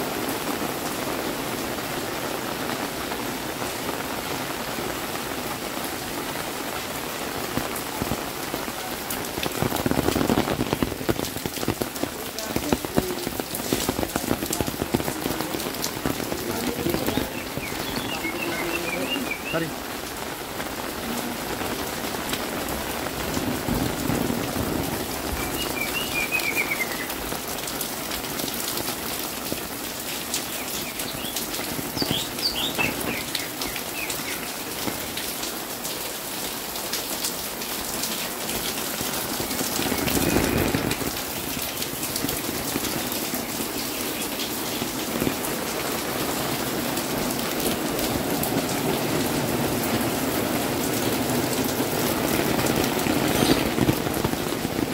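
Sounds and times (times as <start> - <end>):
steady rain on pavement and roofs: 0.0 - 54.9
bird chirps: 16.9 - 19.7, 25.4 - 27.2, 30.6 - 34.6, 53.4 - 53.7.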